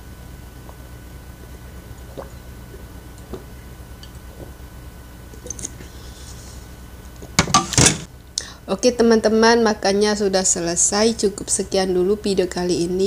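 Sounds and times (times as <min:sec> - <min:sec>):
person gulping water: 0:00.6 - 0:04.7, 0:05.3 - 0:05.9.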